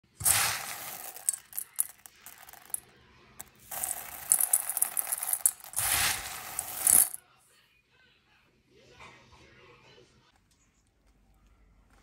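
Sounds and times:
dry lentils rattling into metal bowl: 0.1s - 2.8s, 3.6s - 7.2s.

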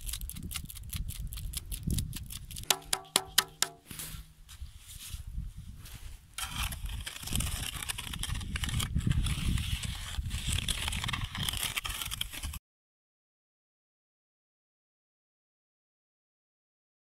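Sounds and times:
shovel scraping wet concrete: 2.6s - 4.4s, 6.4s - 12.6s.

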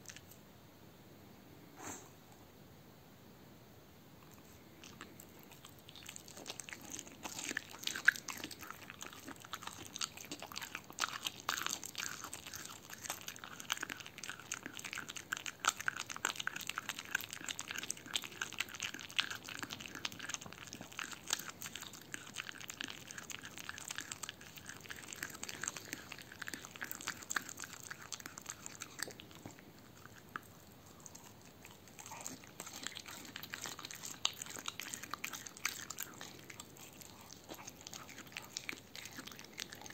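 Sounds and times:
dog chewing and biting: 4.2s - 39.9s.

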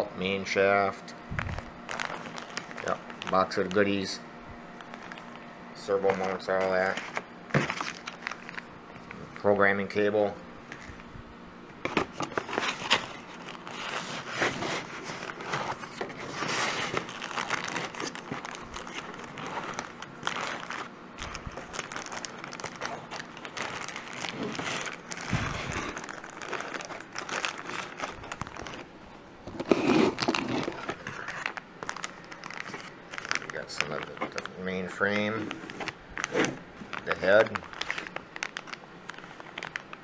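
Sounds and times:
plastic bags crinkling: 1.3s - 9.4s, 12.1s - 40.0s
cardboard scraping: 11.9s - 20.9s, 29.5s - 31.6s.

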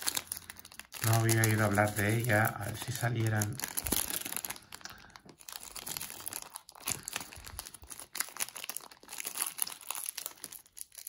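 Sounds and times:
plastic pack crinkling and tearing: 0.0s - 11.0s.

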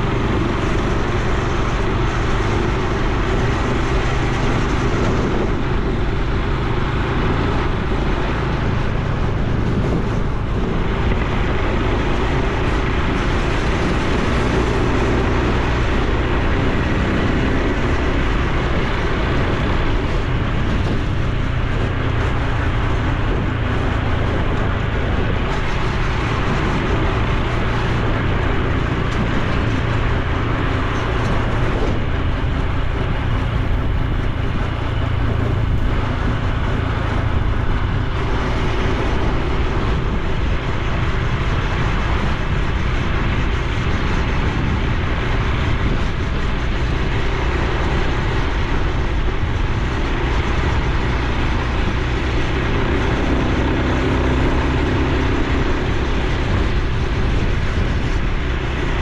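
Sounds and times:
motorcycle engine running: 0.0s - 59.0s
wind and road noise: 0.0s - 59.0s.

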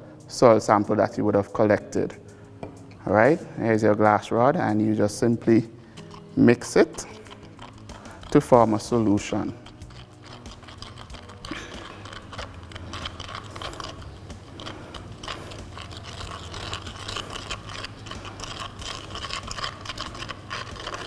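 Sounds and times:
glass rod scraping plastic beaker: 6.0s - 21.0s.

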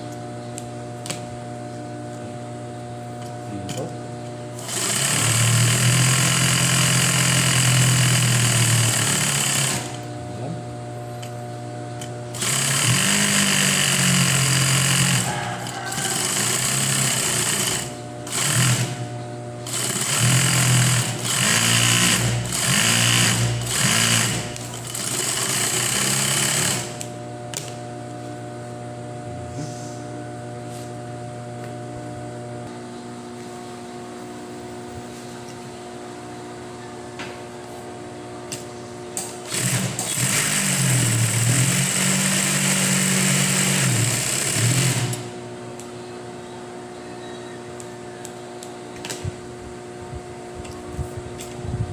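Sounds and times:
sewing machine stitching: 4.6s - 10.0s, 12.3s - 19.0s, 19.6s - 27.0s, 39.4s - 45.3s
sewing machine humming: 4.6s - 10.1s, 12.3s - 27.8s, 39.2s - 45.4s.

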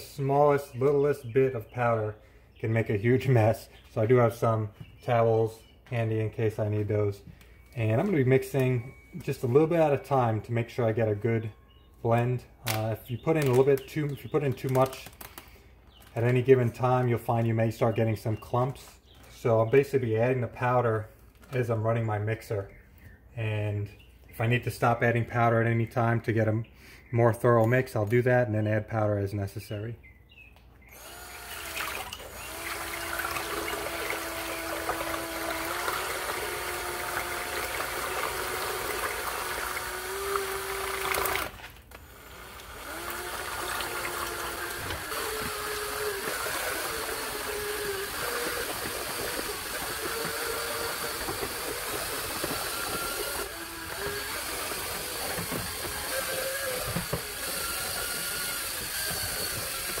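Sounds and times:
power drill motor whine: 7.3s - 10.4s, 30.9s - 60.0s
water churning in bucket: 31.6s - 41.6s, 42.6s - 60.0s.

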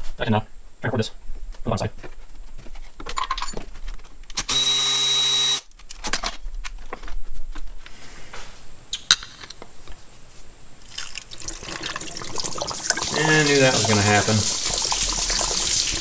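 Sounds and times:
cordless power tool whirring: 4.5s - 5.6s.

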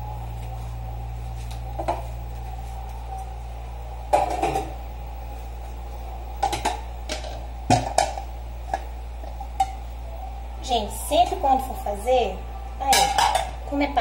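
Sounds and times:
steady low hum: 0.0s - 14.0s
dishes clacking and clinking: 12.8s - 13.6s.

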